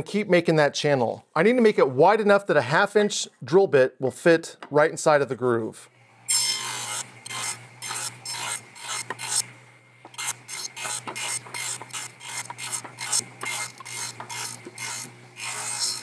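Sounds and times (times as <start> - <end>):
saw motor humming: 6.2 - 16.0
table saw cutting wood: 6.3 - 16.0.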